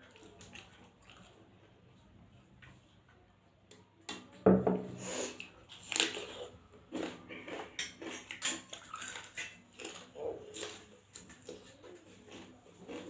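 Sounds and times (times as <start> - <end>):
chewing and crunching: 0.0 - 2.9, 5.2 - 13.0
mug knocking on table: 4.5 - 4.9.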